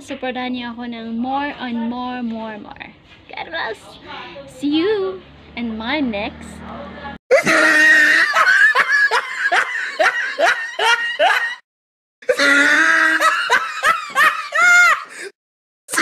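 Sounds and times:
person laughing: 0:07.3 - 0:11.6, 0:12.2 - 0:15.3.

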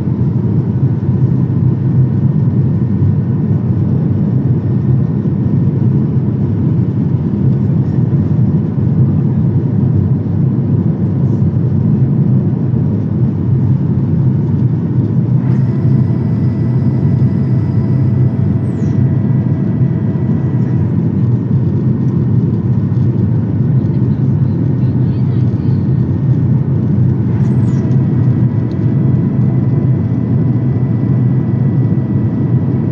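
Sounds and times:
aircraft cabin roar: 0:00.0 - 0:32.9
thin high whine: 0:15.3 - 0:21.2.

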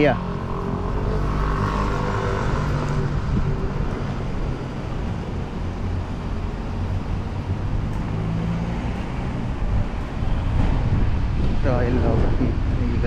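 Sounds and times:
low engine hum: 0:00.0 - 0:13.0
road traffic rumble: 0:00.0 - 0:13.0.

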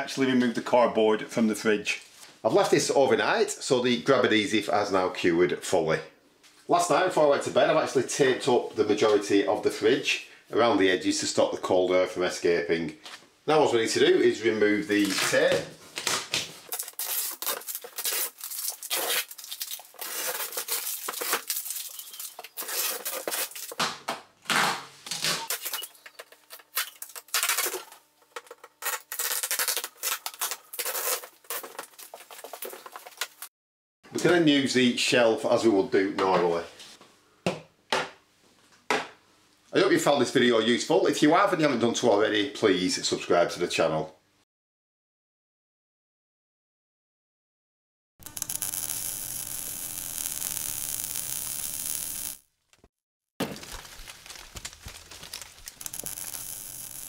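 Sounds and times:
adhesive tape ripping: 0:15.0 - 0:23.8, 0:24.5 - 0:28.0, 0:28.8 - 0:33.5, 0:48.2 - 0:52.4, 0:53.5 - 0:57.0
scattered crackles and clicks: 0:16.7 - 0:23.8, 0:25.5 - 0:33.5, 0:48.2 - 0:57.0
steady hiss with crackle: 0:48.2 - 0:52.4, 0:53.7 - 0:57.0
cardboard being handled: 0:53.4 - 0:55.9.

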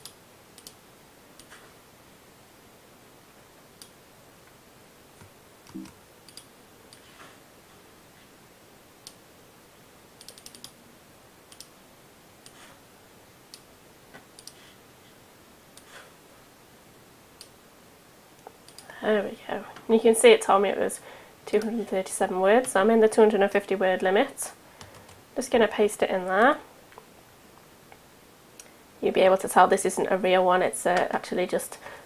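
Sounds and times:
keyboard and mouse clicks: 0:00.0 - 0:00.8, 0:05.2 - 0:07.1, 0:10.2 - 0:10.8, 0:11.5 - 0:11.7, 0:14.4 - 0:14.6, 0:18.4 - 0:18.9.

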